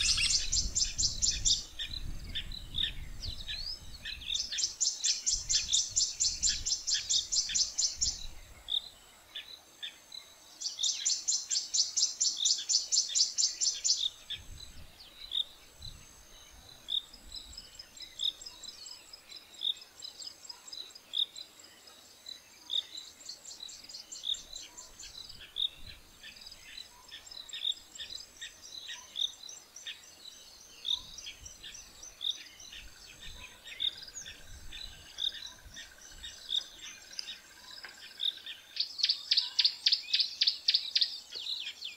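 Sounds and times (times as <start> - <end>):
wild birds calling: 0.0 - 9.0.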